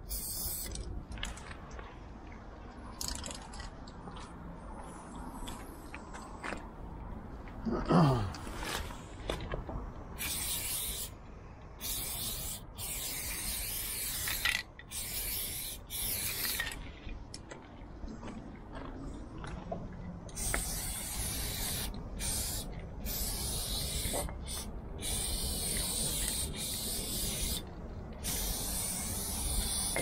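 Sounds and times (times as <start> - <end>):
spray paint can hissing: 0.0 - 0.9, 10.2 - 11.2, 11.8 - 16.8, 20.3 - 30.0.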